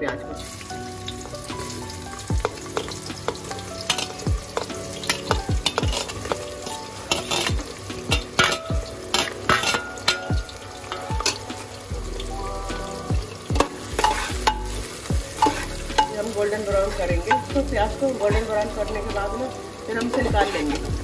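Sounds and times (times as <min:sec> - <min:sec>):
oil popping: 0:00.3 - 0:21.0
onions sizzling in oil: 0:00.4 - 0:21.0
metal skimmer scraping pot: 0:02.4 - 0:11.8, 0:13.6 - 0:16.2.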